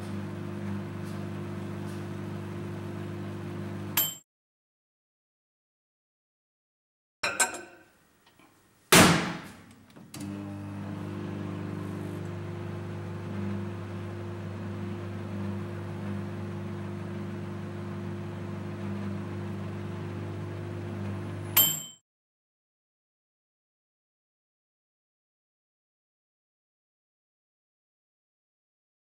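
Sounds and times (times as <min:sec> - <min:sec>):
microwave oven hum: 0:00.0 - 0:04.1, 0:10.0 - 0:21.8.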